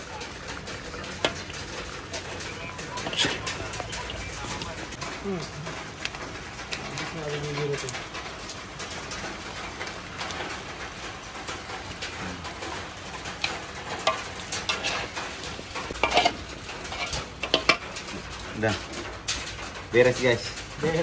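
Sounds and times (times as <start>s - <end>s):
spatula scraping and clinking wok: 13.0s - 18.3s.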